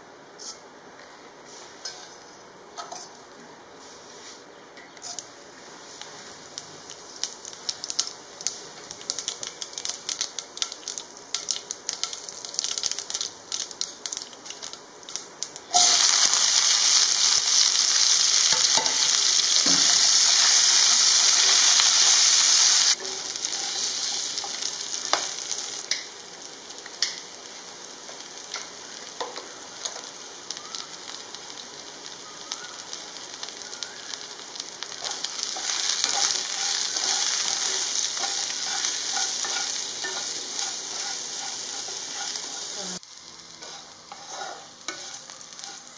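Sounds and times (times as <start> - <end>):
seeds crackling in hot oil: 5.0 - 45.9
vegetables sizzling in a pan: 5.0 - 45.9
wooden spatula stirring: 35.0 - 42.8, 43.6 - 45.9.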